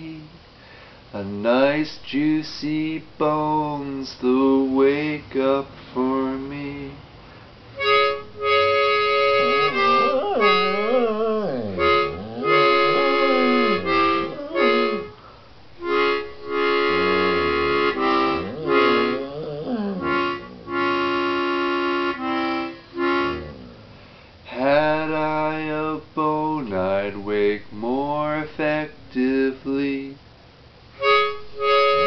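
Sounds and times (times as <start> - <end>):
harmonica chords: 7.8 - 24.2, 31.0 - 32.0
dog howling: 9.3 - 15.2, 17.2 - 21.2, 23.2 - 24.0.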